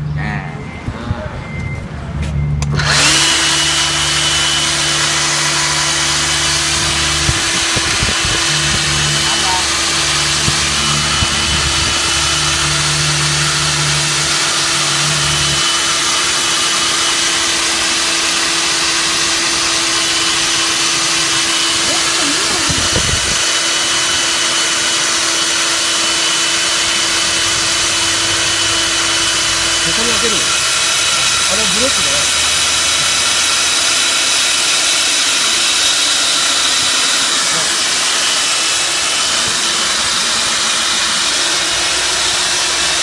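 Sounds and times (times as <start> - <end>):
low hum: 0.0 - 15.6
core drill cutting concrete: 2.6 - 43.0.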